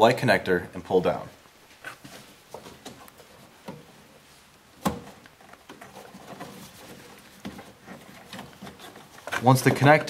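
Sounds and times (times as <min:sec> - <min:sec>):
faint rustling of hands: 0:01.6 - 0:04.6.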